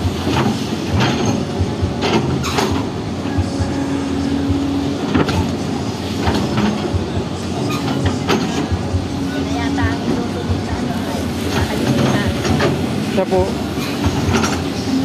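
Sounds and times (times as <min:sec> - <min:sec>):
excavator diesel engine rumbling: 0:00.0 - 0:15.0
metallic clanks from excavator arm: 0:00.3 - 0:02.9, 0:05.1 - 0:05.5, 0:06.2 - 0:07.0, 0:07.6 - 0:08.8, 0:13.8 - 0:14.8.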